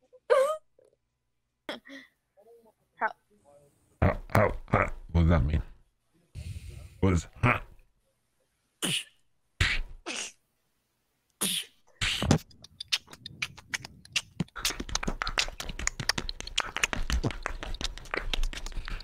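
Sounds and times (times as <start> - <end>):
person beatboxing: 8.8 - 10.3, 11.4 - 19.0.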